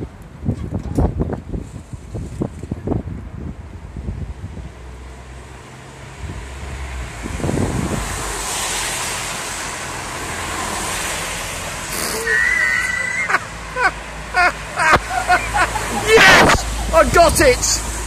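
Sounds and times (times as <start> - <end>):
car driving past: 4.8 - 17.0.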